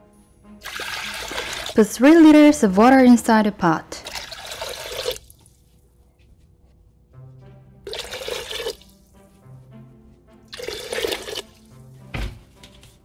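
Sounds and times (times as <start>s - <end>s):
soft background music: 0.0s - 13.0s
water poured into metal pot: 0.6s - 1.8s, 4.0s - 5.5s, 7.9s - 9.0s, 10.5s - 11.6s.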